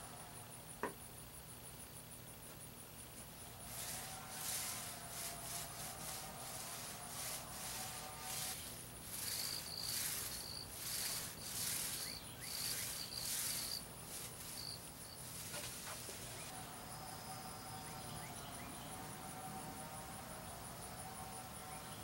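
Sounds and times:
insect chirping: 0.0 - 22.0
paint roller swishing on board: 3.6 - 16.5.

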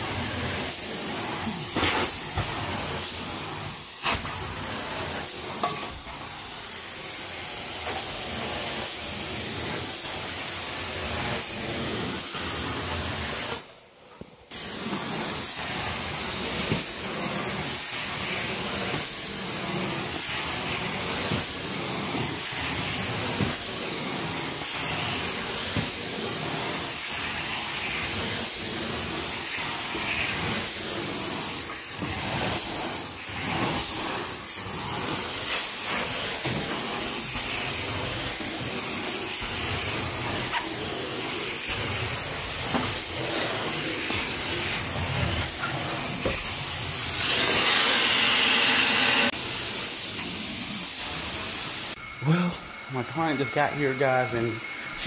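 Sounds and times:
carpet cleaning wand hissing: 0.0 - 13.7, 14.5 - 55.0.

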